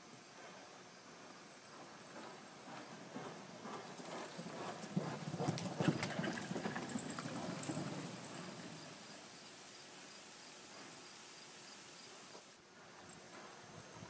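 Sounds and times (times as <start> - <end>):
horse hoofbeats on dirt: 1.6 - 9.1.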